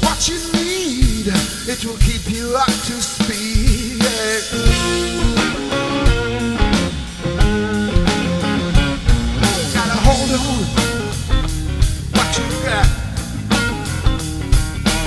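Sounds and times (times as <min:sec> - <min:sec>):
bass: 0:00.0 - 0:15.0
steady drum beat: 0:00.0 - 0:15.0
electric guitar bending notes: 0:04.4 - 0:15.0.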